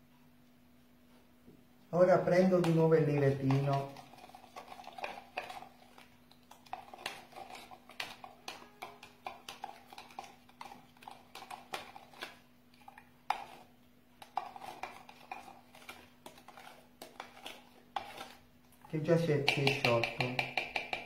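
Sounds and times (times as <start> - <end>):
faint steady hum: 0.0 - 21.0
spoon tapping plastic jug: 2.4 - 4.0, 7.9 - 10.7, 19.0 - 21.0.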